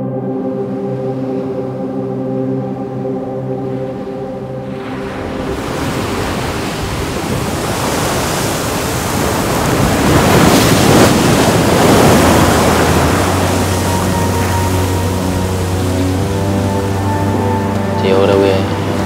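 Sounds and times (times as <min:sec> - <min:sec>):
music: 0:00.0 - 0:07.0, 0:10.2 - 0:19.0
waves breaking on rocky shore: 0:04.7 - 0:17.0.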